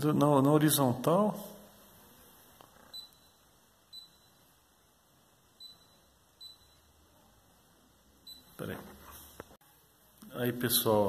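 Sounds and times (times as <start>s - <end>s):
short high touchscreen beeps: 2.9s - 4.5s, 5.6s - 7.0s.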